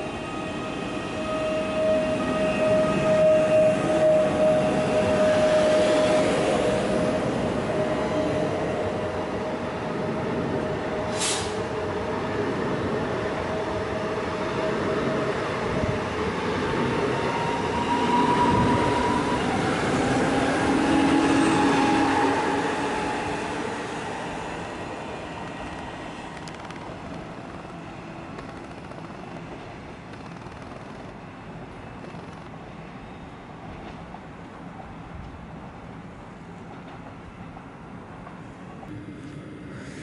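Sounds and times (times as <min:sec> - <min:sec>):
electric train whining: 0:17.6 - 0:32.5.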